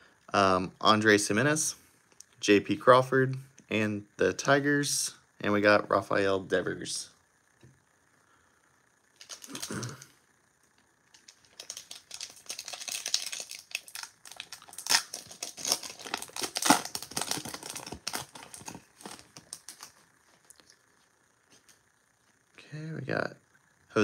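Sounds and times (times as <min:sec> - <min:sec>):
foil wrapper tearing and crinkling: 0:09.2 - 0:10.0, 0:11.2 - 0:20.0.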